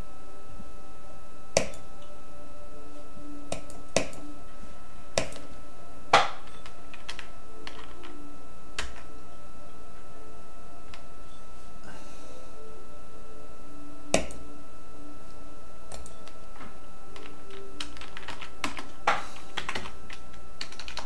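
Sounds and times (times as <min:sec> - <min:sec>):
faint constant tone: 0:00.0 - 0:21.0
sharp clicks: 0:15.9 - 0:16.2.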